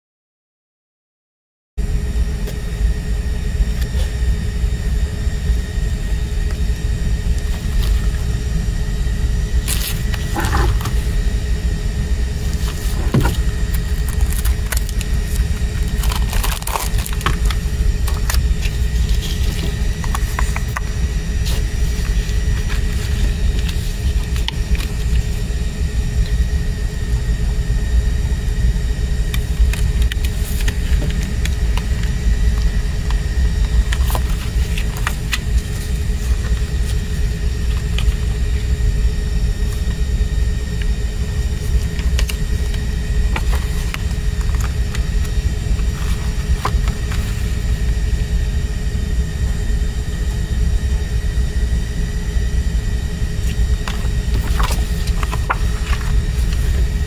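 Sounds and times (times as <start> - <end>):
low rumble with faint hum: 1.8 - 57.0
cd case and booklet handled: 9.6 - 11.1, 12.4 - 25.3, 29.3 - 38.8, 40.7 - 47.7, 53.4 - 57.0.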